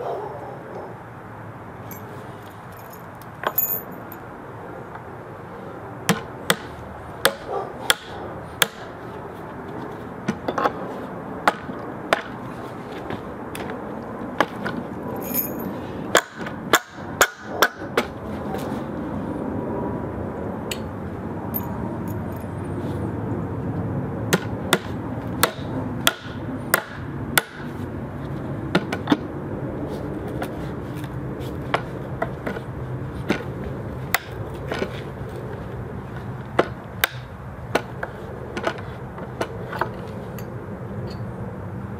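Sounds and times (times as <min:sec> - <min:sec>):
hammer striking nails: 0:06.1 - 0:08.9, 0:16.2 - 0:17.8, 0:24.3 - 0:27.7.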